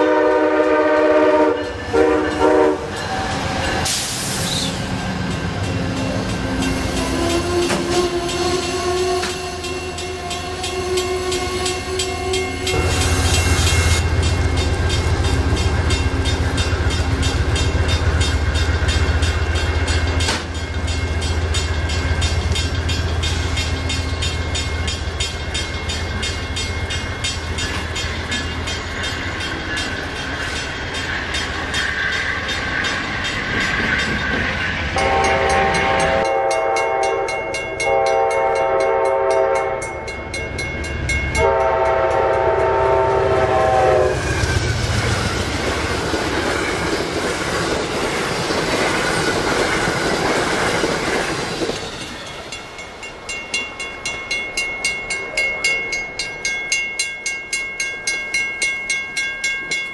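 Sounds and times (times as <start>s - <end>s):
train horn blasts: 0.0s - 4.8s, 6.8s - 14.0s, 35.0s - 40.1s, 41.3s - 44.5s
train low rumble: 0.0s - 59.9s.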